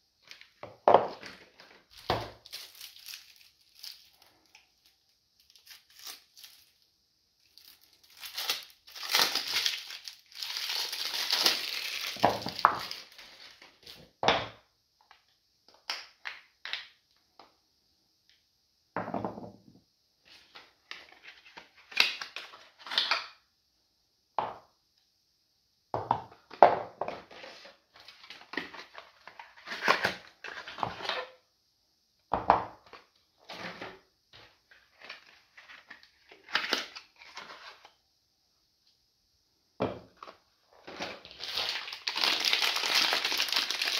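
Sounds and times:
plastic shrink-wrap crinkling: 1.2s - 14.0s, 40.9s - 43.9s.

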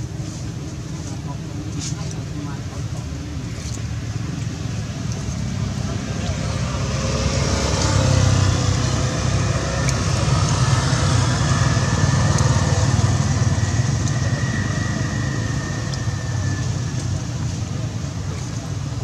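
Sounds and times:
small engine humming: 5.3s - 19.0s.

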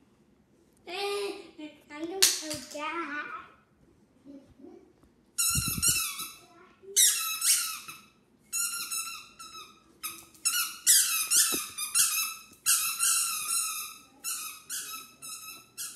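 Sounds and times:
squeaky toy squeaking: 5.4s - 6.4s, 7.0s - 15.9s.

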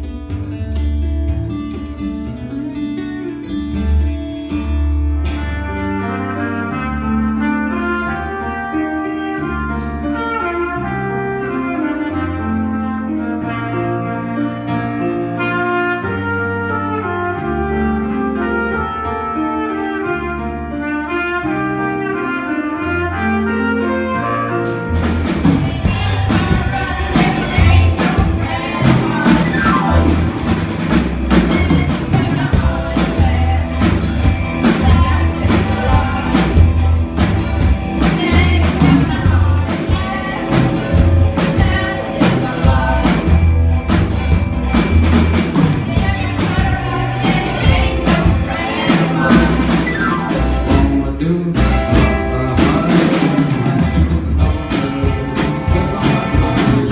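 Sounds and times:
piano accompaniment: 0.0s - 56.9s
rock band playing: 0.0s - 56.9s
trumpet melody: 5.2s - 56.9s
boy singing: 25.4s - 30.1s, 31.3s - 36.9s, 38.0s - 43.4s, 45.8s - 49.8s.

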